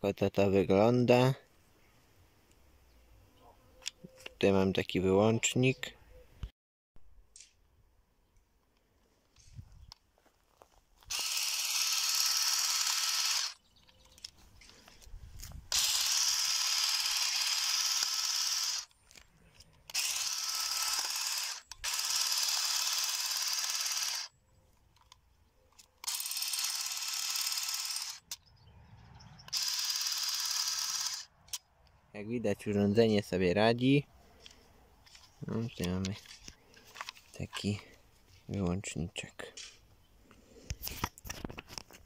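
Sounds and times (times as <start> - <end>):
battery shears buzzing: 11.1 - 13.6, 15.7 - 19.0, 19.9 - 24.3, 26.0 - 28.4, 29.5 - 31.3.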